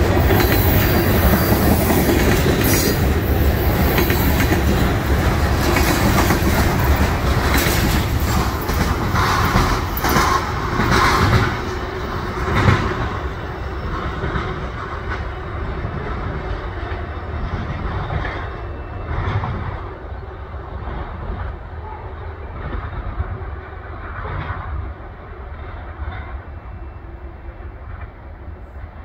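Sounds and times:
train wheels clicking over rails: 0.0 - 19.9
freight train rolling past: 0.0 - 29.0.

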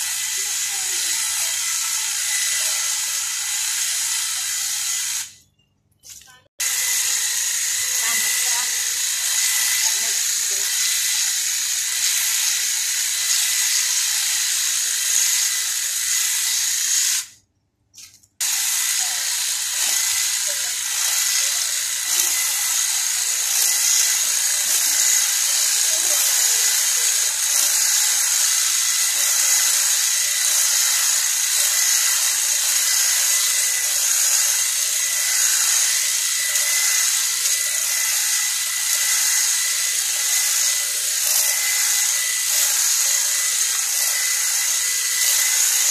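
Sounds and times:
hedge trimmer cutting plants: 0.0 - 5.4, 6.2 - 17.3, 18.0 - 45.9.

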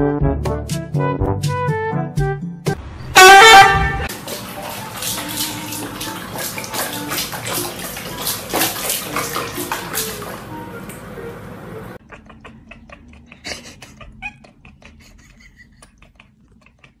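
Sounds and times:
loud honk-like sound: 3.0 - 4.1
water splashing in basin: 3.2 - 11.5.

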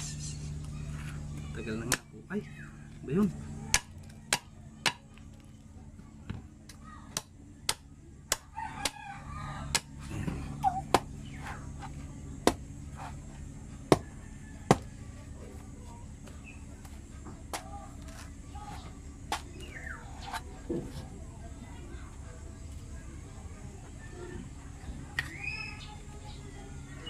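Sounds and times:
steady low hum: 0.0 - 27.0
knife chopping coconut husk: 1.7 - 2.2, 3.7 - 5.1, 6.7 - 14.1, 14.7 - 14.9
rooster crowing: 8.5 - 9.9, 14.0 - 15.1.

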